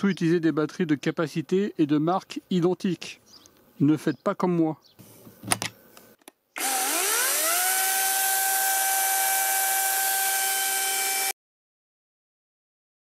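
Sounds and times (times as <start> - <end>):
chainsaw motor whining: 6.6 - 11.3.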